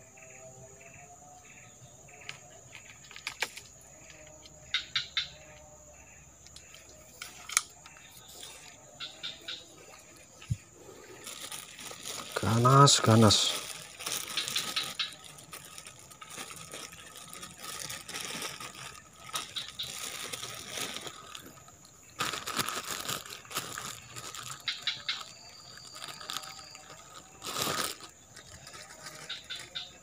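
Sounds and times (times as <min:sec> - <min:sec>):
leaves and brush rustling: 0:06.6 - 0:30.0
plastic bag crinkling: 0:09.5 - 0:30.0.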